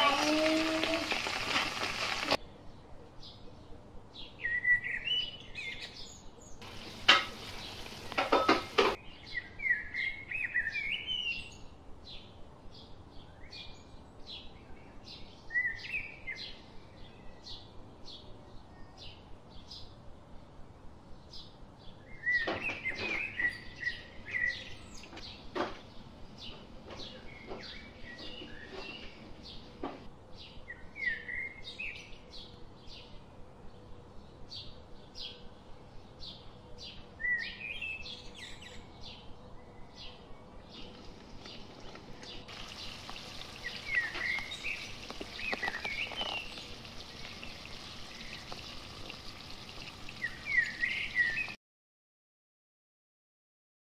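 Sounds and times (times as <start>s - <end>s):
pasta pouring from a colander: 0.0s - 2.4s
birds chirping: 0.0s - 20.1s, 21.0s - 51.6s
utensil clinking against a pan: 7.0s - 9.0s.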